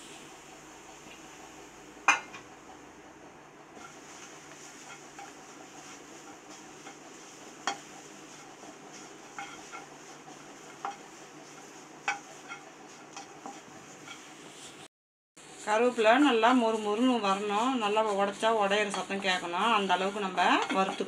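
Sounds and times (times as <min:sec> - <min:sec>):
faint steady hiss: 0:00.0 - 0:09.3
spatula tapping pan: 0:02.0 - 0:02.5, 0:03.8 - 0:14.3, 0:20.2 - 0:21.0
spatula scraping in pan: 0:03.7 - 0:14.9, 0:16.0 - 0:21.0.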